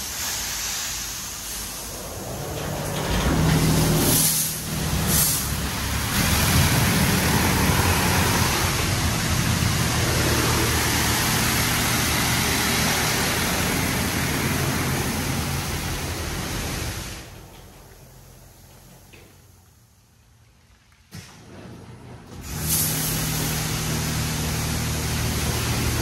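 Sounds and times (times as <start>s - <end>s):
short hissing bursts: 0.0s - 2.0s, 22.5s - 25.8s
water spray drumming on car: 3.6s - 17.3s, 22.4s - 26.0s.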